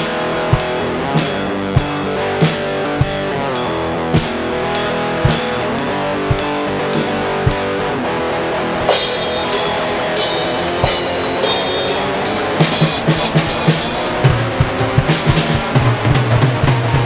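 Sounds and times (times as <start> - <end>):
sustained backing chords: 0.0 - 17.0
drum hits: 0.4 - 7.9, 8.8 - 17.0
cymbal crashes: 8.9 - 15.7.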